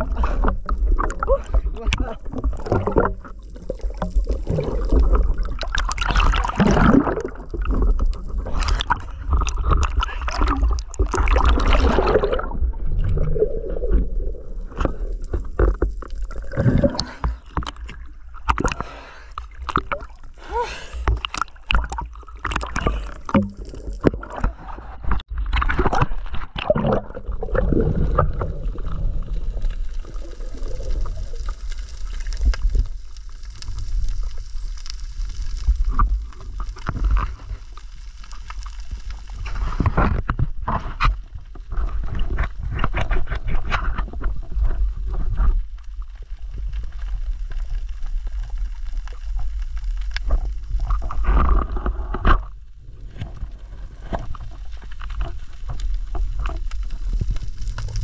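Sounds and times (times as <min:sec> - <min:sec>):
water gurgling and sloshing: 0:00.0 - 0:58.0.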